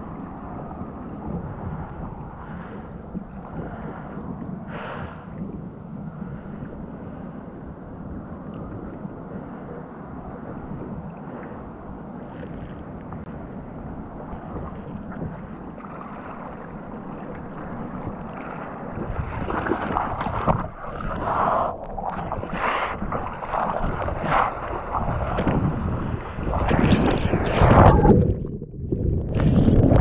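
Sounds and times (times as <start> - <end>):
wind rumbling on microphone: 0.0 - 30.0
sea water lapping: 9.2 - 28.5
hands paddling in water: 17.4 - 28.3.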